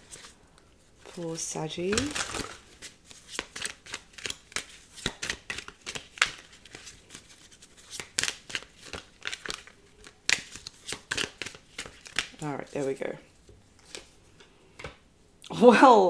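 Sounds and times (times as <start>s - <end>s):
cards snapping and sliding: 2.0s - 6.9s, 7.8s - 12.4s.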